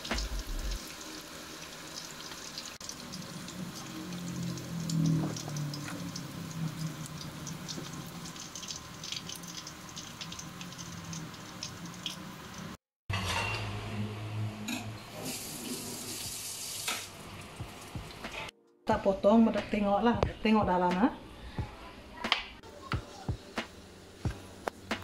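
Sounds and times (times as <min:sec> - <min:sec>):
oil sizzling in a wok: 0:00.0 - 0:13.6, 0:15.1 - 0:18.4.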